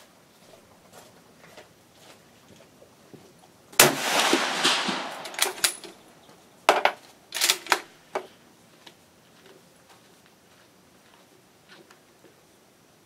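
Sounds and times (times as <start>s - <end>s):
rifle shot: 3.8s - 6.1s
rifle bolt clicks: 4.7s - 6.0s.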